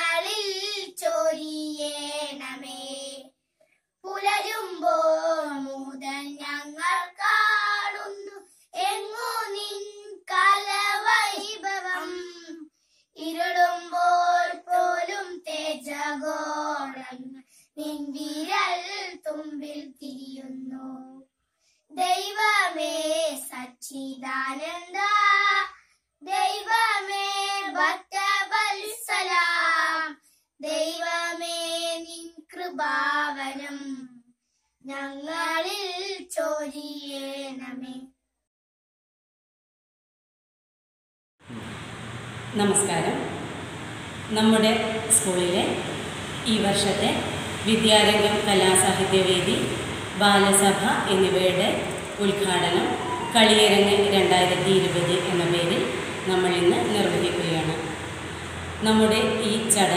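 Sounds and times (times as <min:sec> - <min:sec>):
girls singing unaccompanied: 0:00.0 - 0:01.2, 0:04.1 - 0:12.2, 0:43.2 - 0:59.9.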